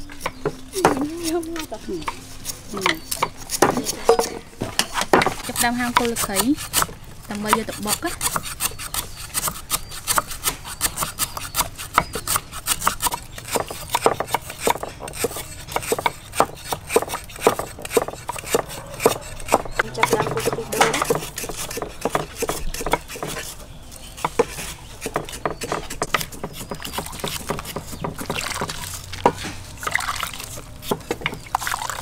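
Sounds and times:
knives chopping on wooden blocks: 0.2s - 31.6s.

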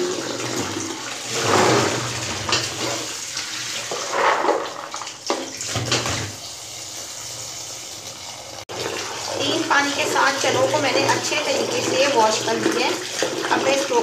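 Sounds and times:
tap water running into container: 0.0s - 14.0s.

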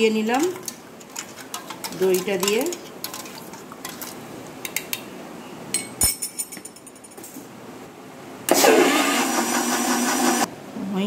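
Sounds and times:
metal spoon clinking against jar: 0.4s - 4.0s.

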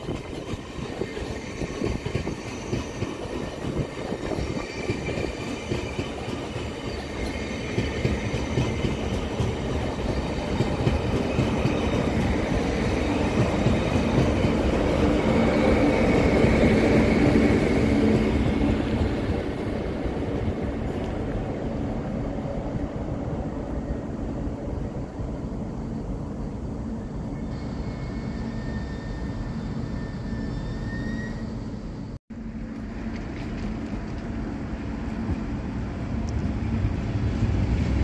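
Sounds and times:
train rumbling with a whine: 0.0s - 38.0s.

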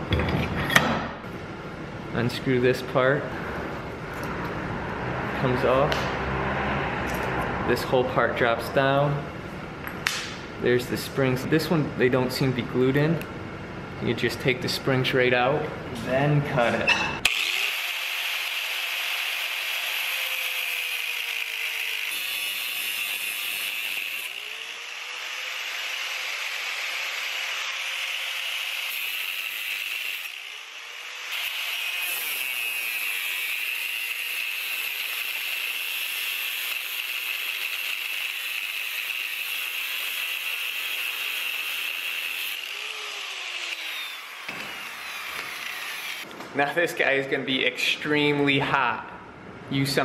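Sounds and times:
angle grinder cutting metal: 17.2s - 46.3s.

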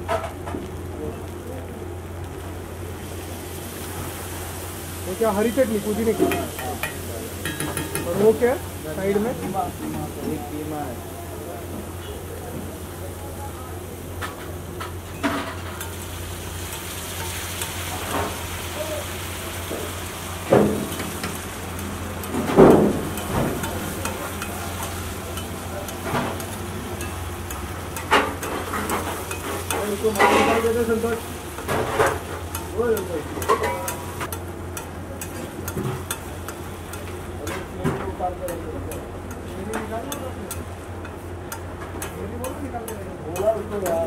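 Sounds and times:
gravy sizzling: 0.0s - 44.0s
metal spatula scraping iron pan: 28.0s - 30.8s.

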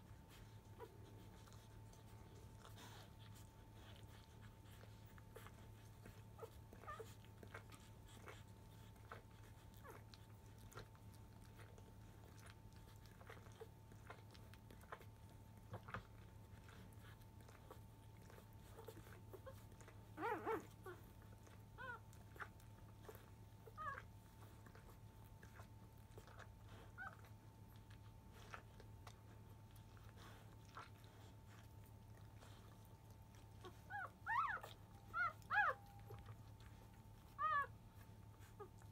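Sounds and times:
puppies suckling: 0.0s - 38.9s
puppies squeaking: 33.6s - 37.8s.

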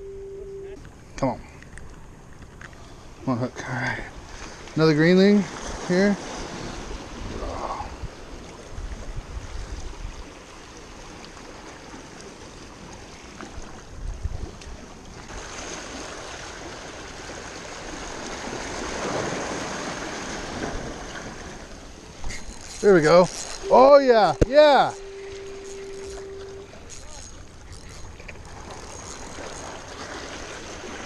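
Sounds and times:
seawater lapping against rocks: 5.4s - 31.0s
wind rumbling on microphone: 5.5s - 10.4s, 13.5s - 15.4s.

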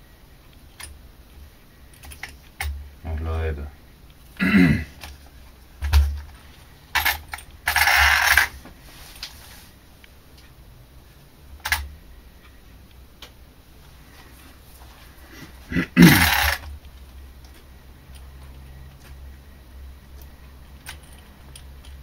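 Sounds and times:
scraping rustle: 7.8s - 9.8s.

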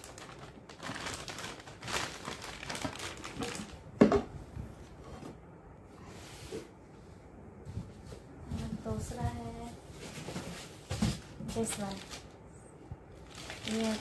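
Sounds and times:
plastic wrapping crinkling: 0.0s - 3.9s, 11.5s - 12.4s, 13.2s - 14.0s.

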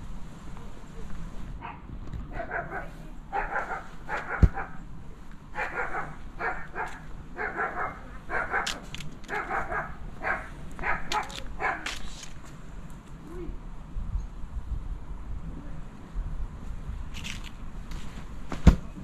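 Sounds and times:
dog barking: 1.6s - 4.8s, 5.6s - 11.9s.

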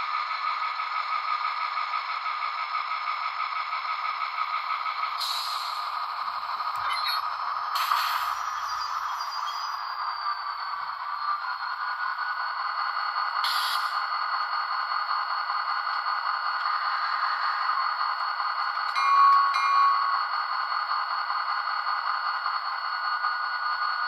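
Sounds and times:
diesel idling through small speaker: 0.0s - 24.0s
short hiss: 7.8s - 8.4s.

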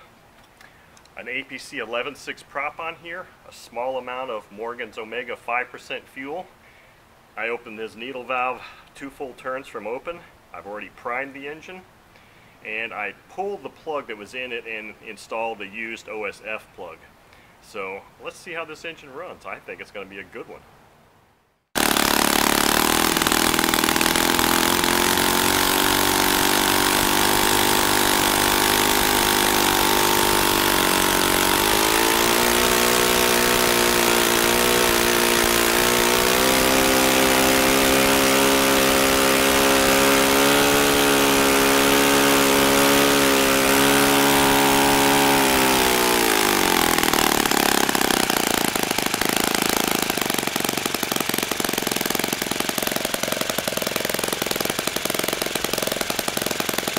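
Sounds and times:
model glow engine running: 21.8s - 56.9s.

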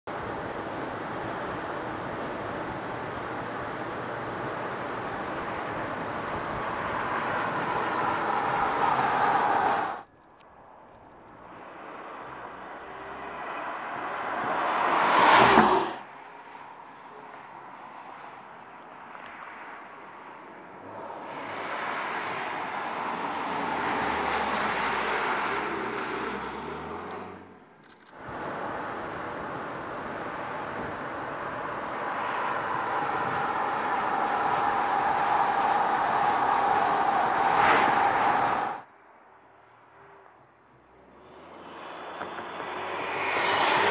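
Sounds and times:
car driving past: 11.6s - 16.1s, 31.4s - 38.9s, 40.8s - 43.9s.

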